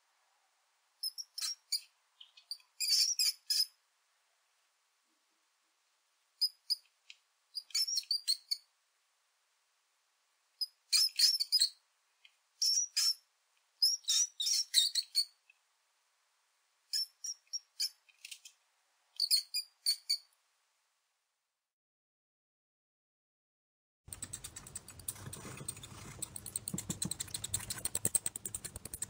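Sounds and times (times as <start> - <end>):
high-pitched mouse squeaks: 1.0 - 3.8, 6.4 - 6.9, 7.6 - 8.7, 10.6 - 11.8, 12.6 - 13.2, 13.8 - 15.4, 16.9 - 18.6, 19.2 - 20.3, 24.1 - 29.0.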